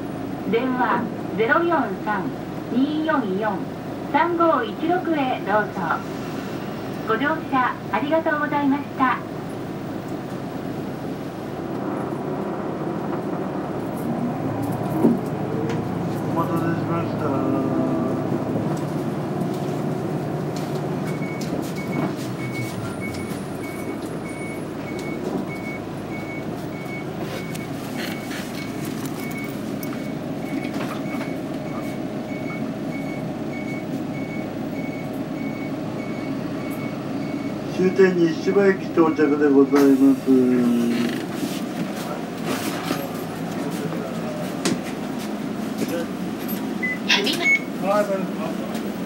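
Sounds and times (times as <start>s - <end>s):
bus engine and road noise: 0.0s - 49.0s
high electronic beep: 46.8s - 47.7s.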